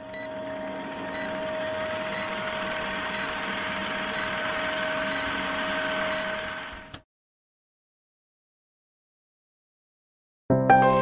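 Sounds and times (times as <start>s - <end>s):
film projector whir and rattle: 0.0s - 7.0s.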